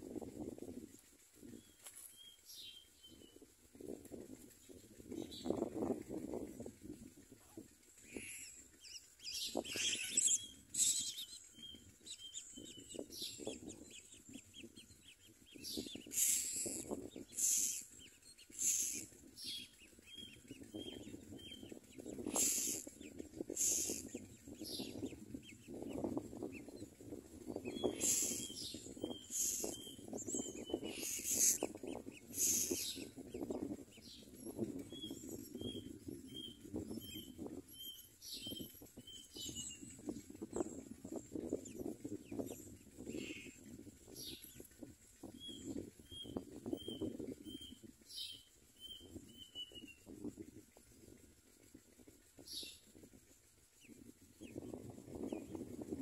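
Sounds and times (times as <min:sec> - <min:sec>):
twigs rustling: 0:01.8 - 0:02.2
small chirps: 0:07.4 - 0:25.7, 0:27.6 - 0:33.2
nestlings harsh begging calls: 0:08.0 - 0:26.8, 0:27.5 - 0:37.2, 0:41.7 - 0:43.6.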